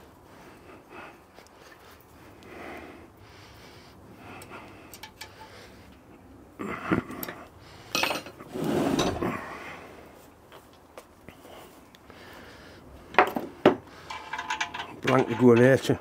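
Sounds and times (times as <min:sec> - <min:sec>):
metal fittings and tools clinking: 0:04.9 - 0:05.6, 0:07.2 - 0:08.4, 0:14.0 - 0:16.0
metal clattering: 0:14.0 - 0:16.0.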